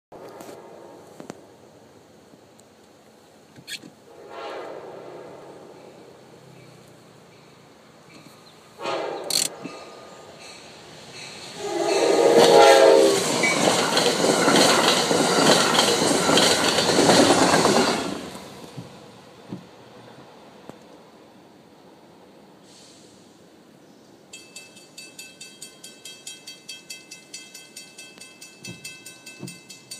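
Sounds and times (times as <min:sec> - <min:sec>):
crossing warning bell ringing: 0:09.5 - 0:17.6, 0:24.3 - 0:29.9.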